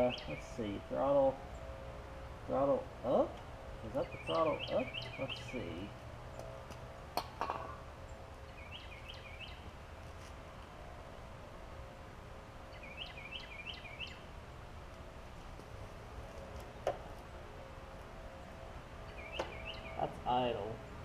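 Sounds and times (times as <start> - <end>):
outdoor background hum: 0.0 - 21.0
small bird chirping: 8.4 - 9.7, 12.7 - 14.2, 19.1 - 20.1.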